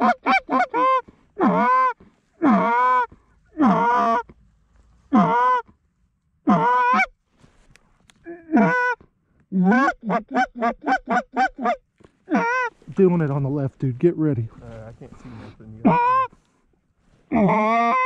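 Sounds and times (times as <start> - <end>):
goose honking: 0.0 - 4.2, 6.4 - 7.1, 8.5 - 9.0, 9.6 - 12.8, 15.3 - 16.4.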